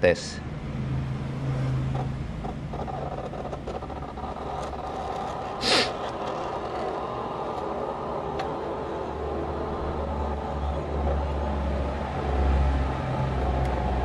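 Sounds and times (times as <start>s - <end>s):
machine humming and whirring: 0.9s - 14.0s
short hiss: 5.6s - 5.9s.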